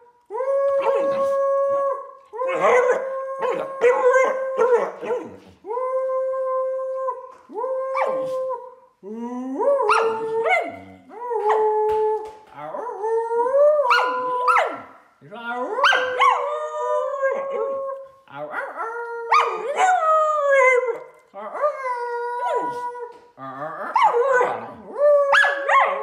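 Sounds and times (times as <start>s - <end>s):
dog howling: 0.4s - 5.3s, 15.6s - 26.0s.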